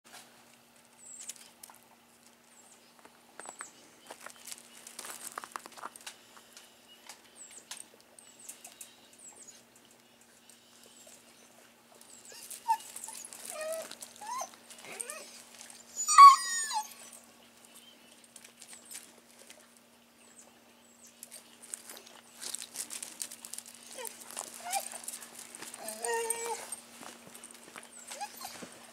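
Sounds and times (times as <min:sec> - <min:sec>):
paws scuffing on gravel: 0:02.9 - 0:06.5, 0:12.1 - 0:16.0, 0:21.3 - 0:28.9
dogs whining and yelping: 0:10.9 - 0:17.3, 0:23.8 - 0:26.9, 0:27.9 - 0:28.9.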